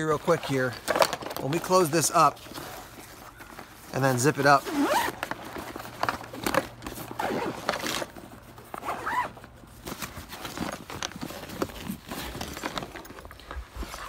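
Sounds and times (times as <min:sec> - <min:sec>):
fabric rustling: 0:01.8 - 0:14.0
zipper being pulled: 0:04.6 - 0:05.4, 0:06.3 - 0:08.1, 0:08.7 - 0:09.4.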